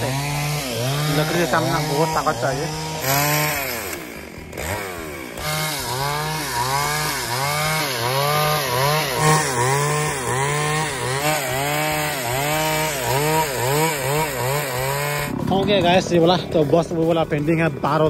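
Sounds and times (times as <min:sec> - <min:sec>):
chainsaw cutting log: 0:00.0 - 0:18.0.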